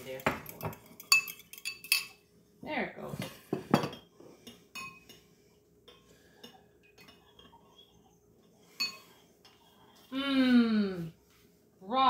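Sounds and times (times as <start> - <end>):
spoon clinking against ceramic bowl: 0.0 - 2.2, 3.8 - 5.2, 8.7 - 9.2.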